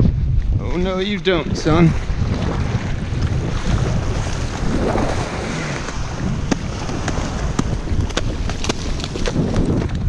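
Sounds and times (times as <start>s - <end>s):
wind buffeting microphone: 0.0s - 10.0s
small waves washing in: 1.6s - 9.2s.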